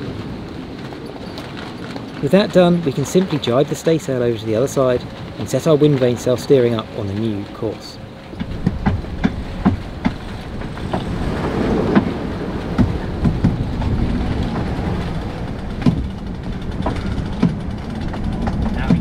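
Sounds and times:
rushing water: 0.0 - 19.0
strong wind buffeting: 0.0 - 19.0
sharp knocks and clicks: 8.3 - 19.0.

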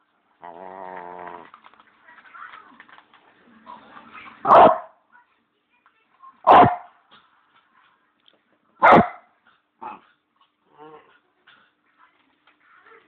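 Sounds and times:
dog barking: 4.5 - 5.0, 6.4 - 6.9, 8.8 - 10.0.

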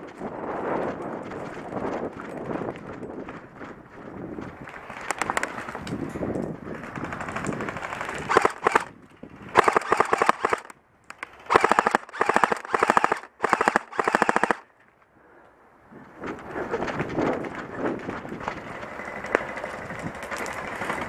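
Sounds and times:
airsoft rifle bursts: 6.8 - 14.7.

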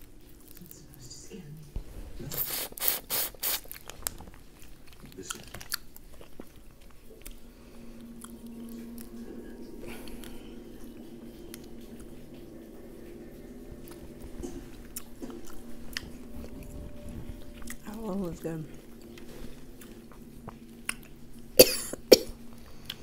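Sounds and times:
low steady hum: 0.0 - 23.0
mouth sucking sounds: 2.2 - 3.8.

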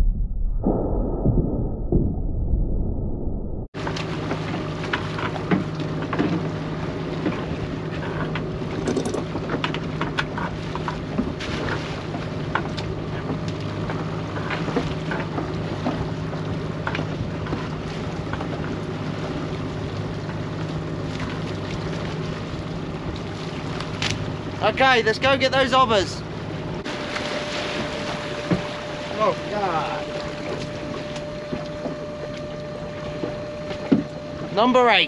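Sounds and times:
water rushing past hull: 3.7 - 35.0
boat engine running: 3.8 - 35.0
gear knocking and clattering: 8.2 - 11.0.

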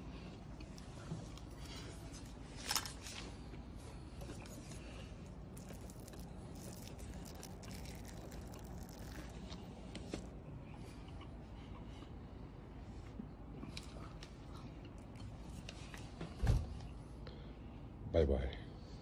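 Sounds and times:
crisp crunch: 0.6 - 3.5, 4.2 - 10.3.

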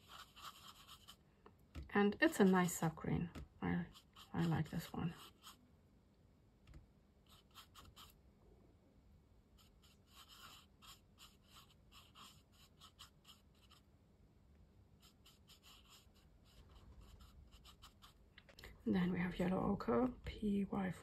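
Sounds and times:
paintbrush scratching on paper: 0.0 - 1.2, 1.8 - 5.6, 7.2 - 8.2, 9.6 - 13.9, 15.0 - 18.2.

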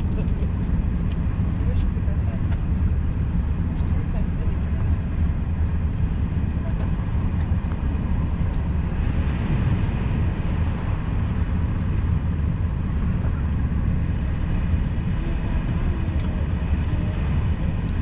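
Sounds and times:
train rumble inside carriage: 0.0 - 18.0.

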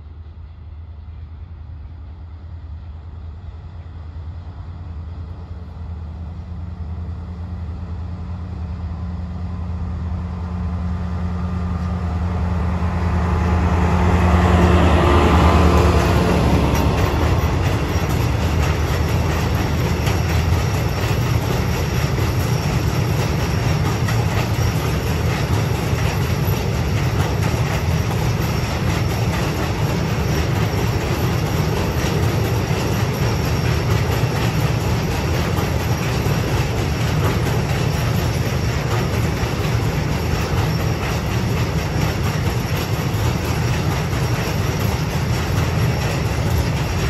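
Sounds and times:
diesel locomotive engine drone: 0.0 - 47.0
freight wagons rumbling on rails: 0.0 - 47.0
dense clicking of wheels: 14.4 - 47.0.

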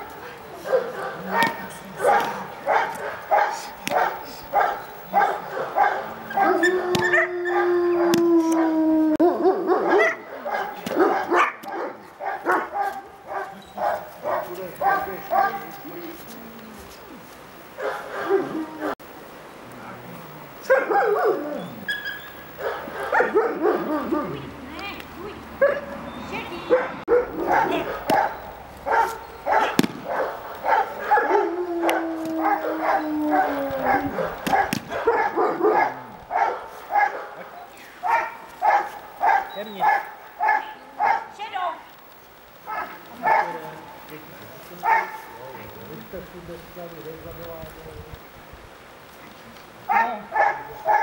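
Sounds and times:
dog barking: 0.1 - 8.6, 9.2 - 15.8, 17.8 - 19.0, 20.6 - 21.4, 22.6 - 24.4, 25.6 - 26.0, 26.7 - 41.4, 42.7 - 43.8, 44.8 - 45.4, 49.9 - 51.0
dog crying: 6.3 - 10.2, 30.8 - 36.2
sharp cracks: 28.0 - 31.1, 31.8 - 35.1.

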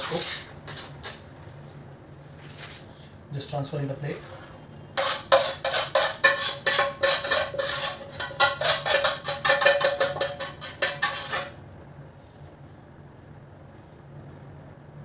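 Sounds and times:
metal spoon scraping a frying pan: 0.0 - 0.9, 4.9 - 11.6.

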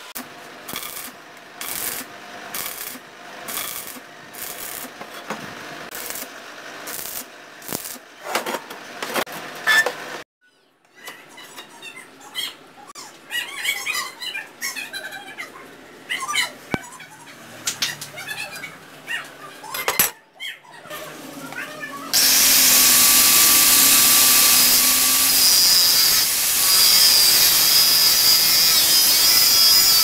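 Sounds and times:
welding arc crackling: 0.1 - 5.0, 5.9 - 8.0, 22.1 - 30.0.

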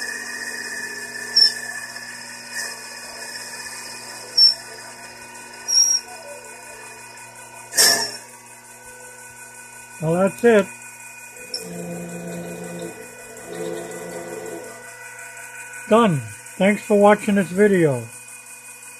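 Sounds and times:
lathe spindle motor whine: 0.0 - 18.9
harsh scrape: 7.7 - 8.2, 11.5 - 14.8.

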